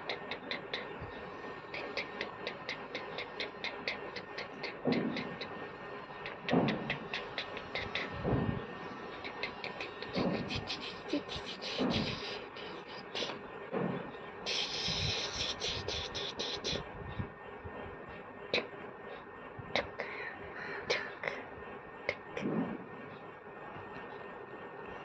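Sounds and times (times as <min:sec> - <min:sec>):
mouth clicks and smacks: 0:00.0 - 0:01.0, 0:01.7 - 0:05.5, 0:06.2 - 0:08.2, 0:09.2 - 0:13.4
soft voice sounds: 0:00.0 - 0:05.6, 0:06.2 - 0:13.4, 0:14.5 - 0:16.8.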